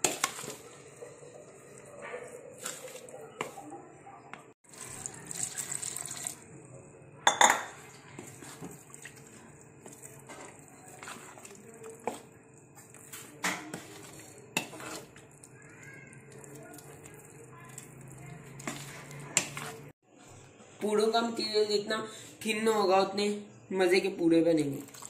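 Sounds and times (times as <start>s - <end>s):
metal spoon stirring batter: 0.0s - 6.5s, 7.3s - 20.0s.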